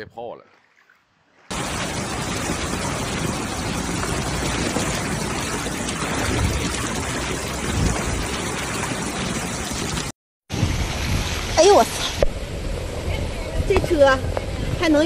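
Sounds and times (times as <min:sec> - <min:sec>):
cars driving through floodwater: 0:01.5 - 0:10.1
heavy rain: 0:01.5 - 0:15.0.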